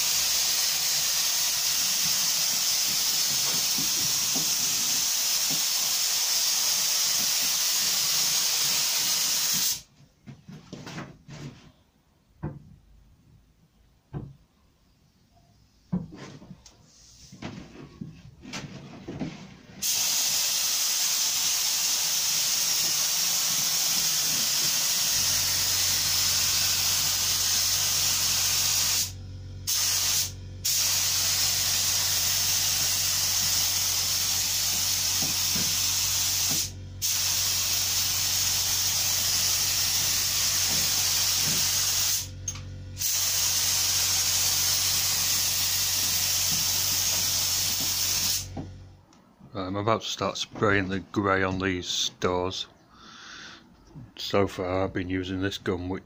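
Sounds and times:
spray gun hissing: 0.0s - 9.9s, 19.8s - 48.6s
low steady hum: 25.3s - 41.0s, 42.3s - 43.0s, 48.4s - 56.0s.

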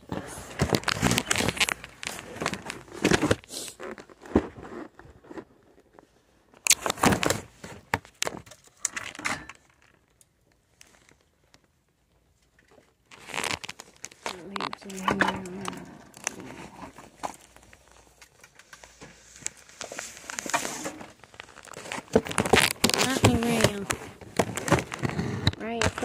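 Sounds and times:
phone handling rustling: 13.1s - 26.0s.

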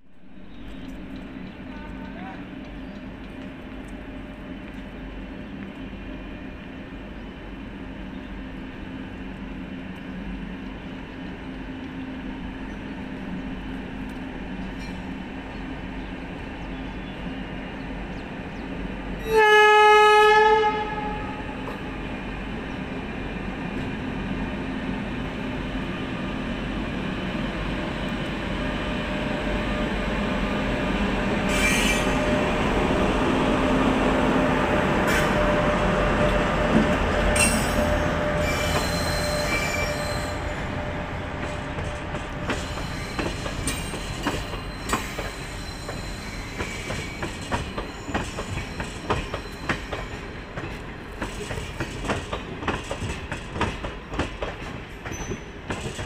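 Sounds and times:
train passing: 0.0s - 56.0s
locomotive horn blast: 19.2s - 21.6s.

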